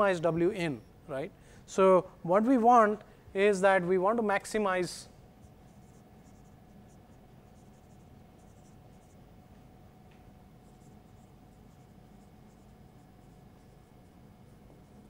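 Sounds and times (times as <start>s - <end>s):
low room hum: 0.0s - 15.0s
marker writing on whiteboard: 5.4s - 9.8s, 10.6s - 15.0s.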